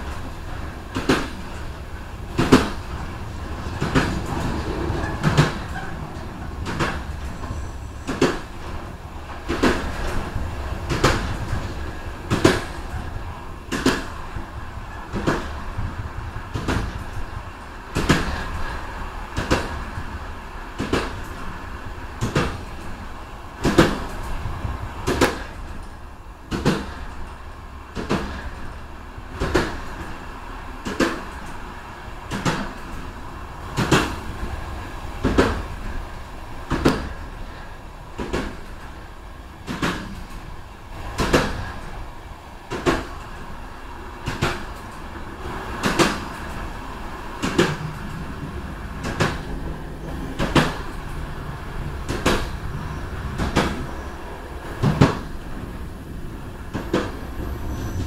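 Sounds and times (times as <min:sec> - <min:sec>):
low rumble of train running: 0:00.0 - 0:58.0
train wheels clicking over rail joints: 0:00.0 - 0:58.0.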